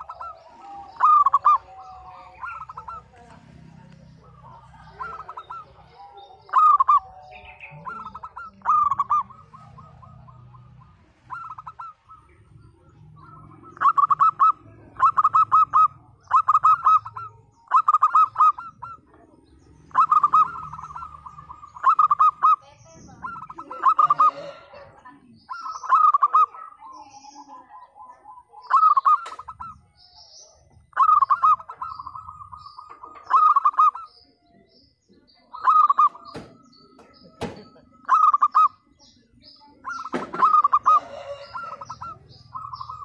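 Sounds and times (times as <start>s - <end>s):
dove cooing: 0.0s - 43.0s.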